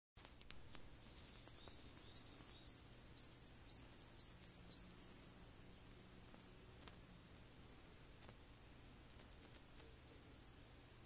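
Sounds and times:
songbird singing high notes: 0:00.9 - 0:05.3.

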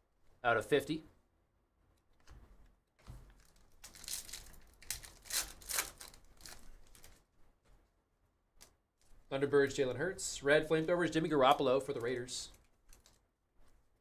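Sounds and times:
foil wrapper crinkling and tearing: 0:03.4 - 0:07.2.

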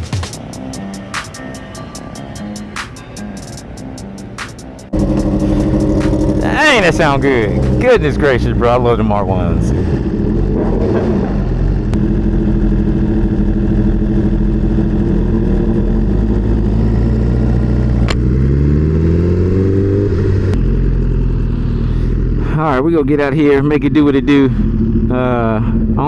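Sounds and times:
motorcycle engine idling and revving: 0:00.0 - 0:26.0.

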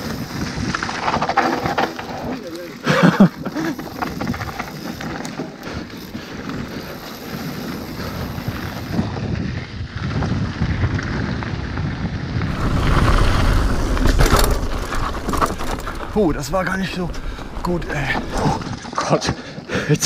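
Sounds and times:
bike tyres rolling on gravel: 0:00.0 - 0:19.7
wind buffeting microphone: 0:03.2 - 0:19.0.

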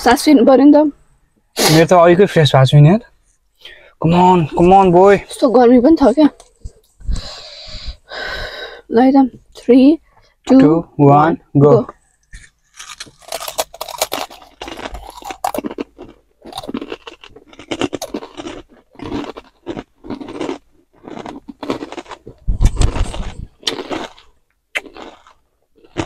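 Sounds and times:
people crunching and chewing chips: 0:11.9 - 0:26.0.

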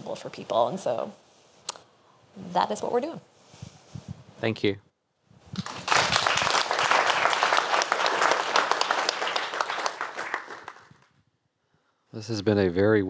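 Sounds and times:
audience applauding: 0:05.6 - 0:11.1.

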